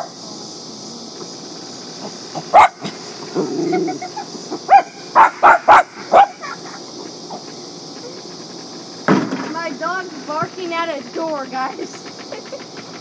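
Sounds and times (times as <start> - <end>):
steady high hiss: 0.0 - 13.0
dog barking: 2.5 - 2.8, 4.7 - 6.4.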